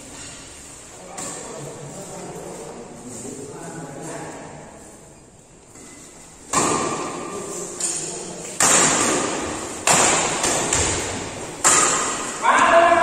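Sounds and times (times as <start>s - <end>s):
rackets hitting shuttlecock: 6.5s - 12.6s.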